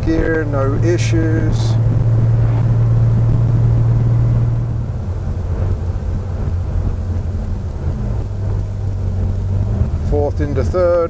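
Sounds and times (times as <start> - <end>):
car engine drone from inside: 0.0 - 11.0.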